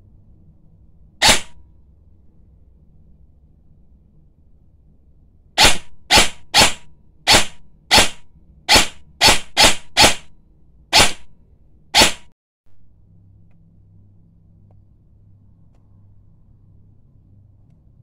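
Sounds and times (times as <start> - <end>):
airsoft gun shots: 1.2 - 1.6, 5.6 - 10.3, 10.9 - 11.3, 12.0 - 12.3.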